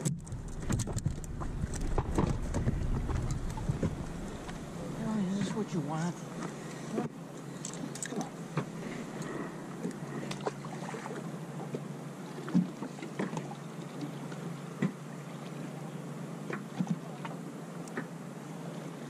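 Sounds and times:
steady low hum: 0:00.0 - 0:12.4
water lapping against boat hull: 0:00.0 - 0:19.0.

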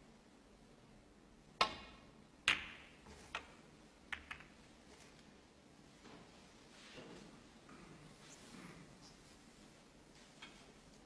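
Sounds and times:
balls clicking faintly: 0:01.6 - 0:05.3
ball hitting ball click: 0:04.2 - 0:04.5.

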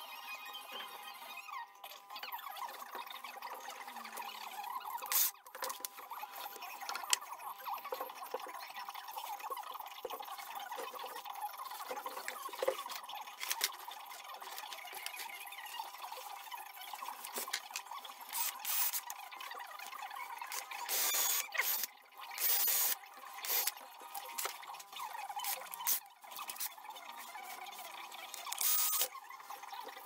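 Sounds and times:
cordless drill running: 0:05.0 - 0:05.3, 0:18.3 - 0:19.1, 0:20.5 - 0:23.7, 0:25.4 - 0:26.7, 0:28.3 - 0:29.1.

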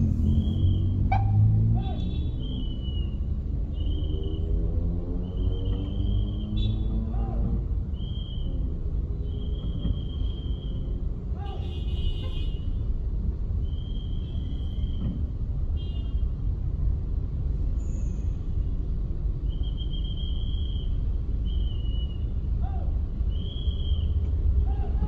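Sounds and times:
car driving rumble: 0:00.0 - 0:12.2.

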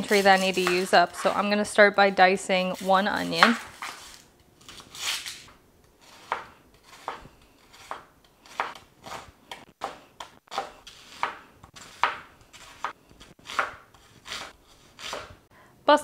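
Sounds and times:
knife chopping onion: 0:00.0 - 0:01.5, 0:02.8 - 0:04.2, 0:06.0 - 0:15.4.

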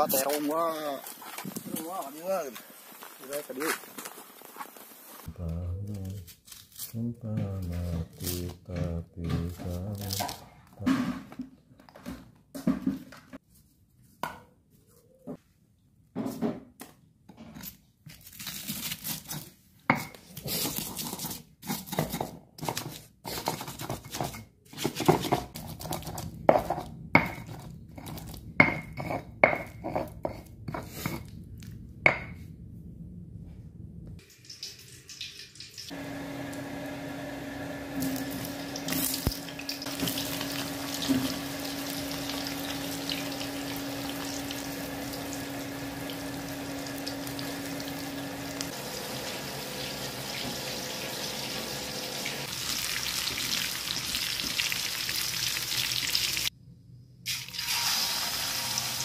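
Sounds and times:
stone pestle grinding in mortar: 0:20.0 - 0:31.4
low hum: 0:30.2 - 0:34.2
eggplant frying in oil: 0:34.2 - 0:56.5, 0:57.3 - 0:59.0.

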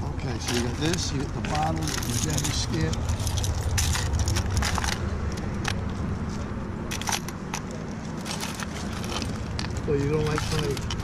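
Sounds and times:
metal keys clinking and jangling: 0:00.4 - 0:05.0, 0:06.9 - 0:09.4.

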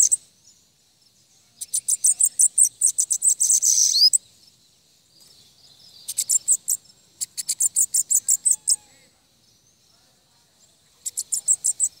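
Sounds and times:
bird singing high sharp notes: 0:01.6 - 0:04.2.

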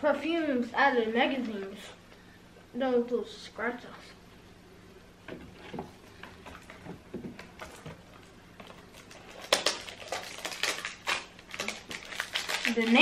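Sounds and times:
packaging crinkling and rustling: 0:05.5 - 0:13.0.

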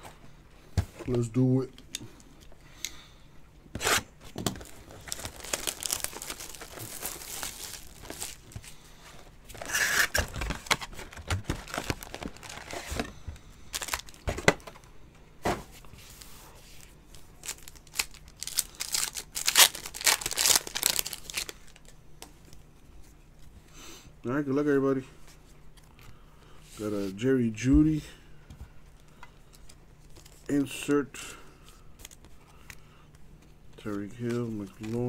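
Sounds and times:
foil pack ripping and crinkling: 0:03.8 - 0:08.8, 0:09.5 - 0:13.1, 0:13.7 - 0:14.3, 0:17.4 - 0:21.9
wrapping crinkling: 0:04.4 - 0:14.3, 0:16.1 - 0:22.0, 0:33.8 - 0:35.0
cardboard ripping: 0:05.0 - 0:08.5.

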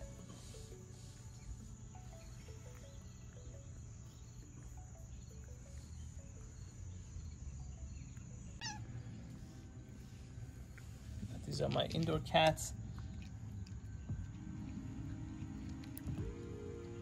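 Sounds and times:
high insect drone: 0:00.0 - 0:11.2
faint background music: 0:00.0 - 0:17.0.

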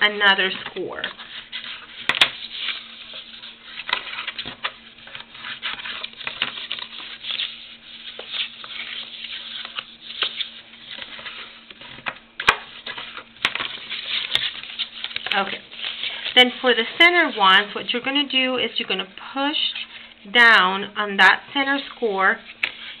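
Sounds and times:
cardstock rustling: 0:00.3 - 0:17.4.

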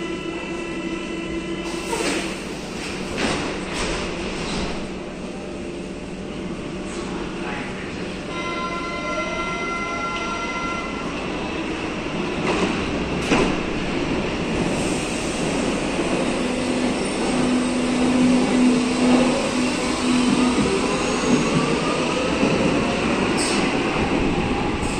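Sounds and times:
train wheels on rail: 0:01.6 - 0:05.0, 0:11.8 - 0:24.9.

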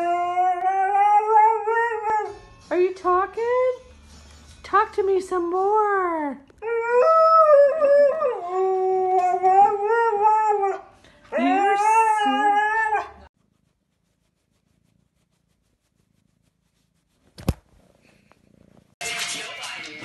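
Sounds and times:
dog howling: 0:06.6 - 0:13.3.

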